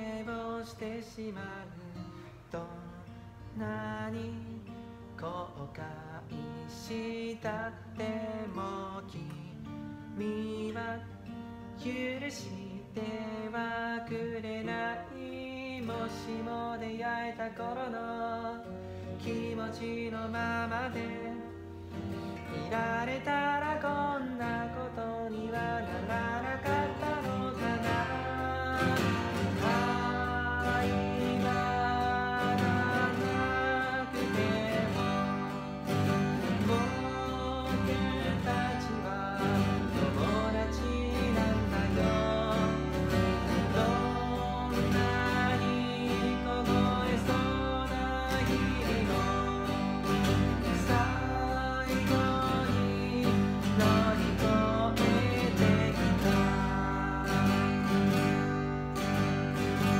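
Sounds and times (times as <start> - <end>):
man singing: 0.0 - 59.9
strummed acoustic guitar: 0.0 - 59.9.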